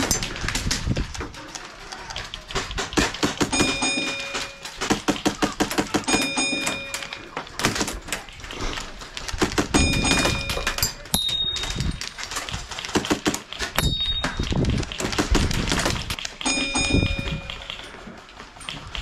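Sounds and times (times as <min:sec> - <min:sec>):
airsoft rifle firing bursts: 0:02.7 - 0:10.8, 0:11.5 - 0:18.0.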